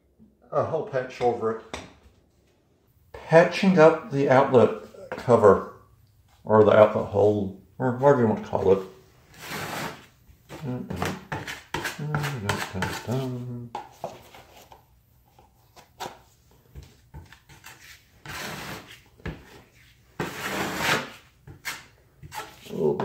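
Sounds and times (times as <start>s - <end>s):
putty knife scraping on wall: 8.4s - 10.1s, 10.9s - 13.3s, 17.3s - 23.0s.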